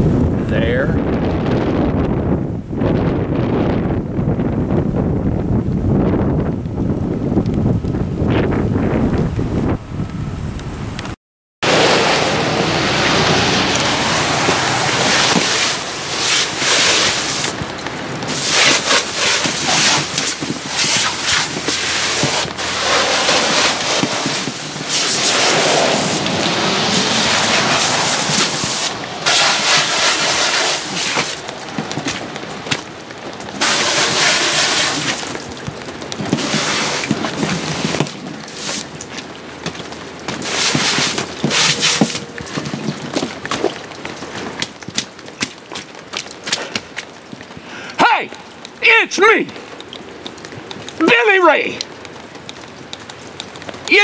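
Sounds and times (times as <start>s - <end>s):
hose spraying water on fabric: 11.6s - 32.2s, 33.5s - 44.2s.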